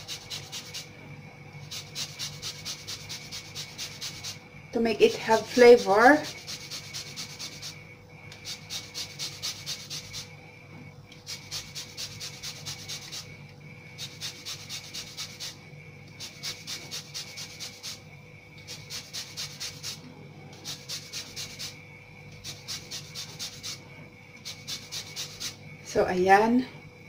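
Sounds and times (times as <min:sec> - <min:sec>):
lemon zested on metal grater: 0:00.0 - 0:01.0, 0:01.6 - 0:04.4, 0:05.1 - 0:10.4, 0:11.2 - 0:13.4, 0:14.0 - 0:18.0, 0:18.6 - 0:20.0, 0:20.6 - 0:23.8, 0:24.4 - 0:25.6.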